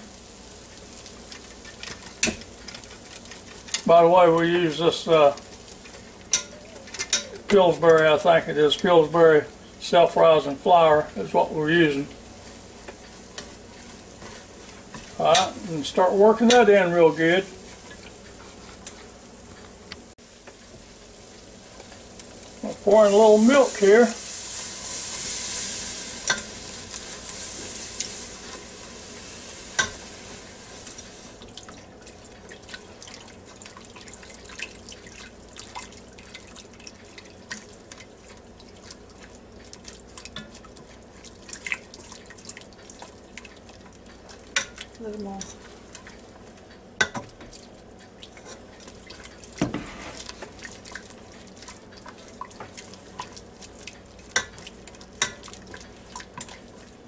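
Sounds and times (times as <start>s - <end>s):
milk sizzling in a hot pot: 0.0s - 57.0s
wire whisk stirring: 1.3s - 8.1s, 11.2s - 19.7s, 22.6s - 28.7s, 31.7s - 57.0s
whisk tapping against pot: 47.0s - 47.6s.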